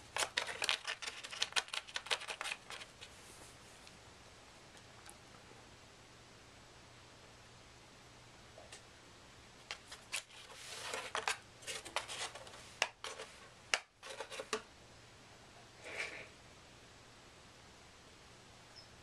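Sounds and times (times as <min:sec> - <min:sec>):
cardboard rustling: 0:00.1 - 0:03.2, 0:09.8 - 0:14.6
cat's paw scraping cardboard box: 0:10.4 - 0:13.3.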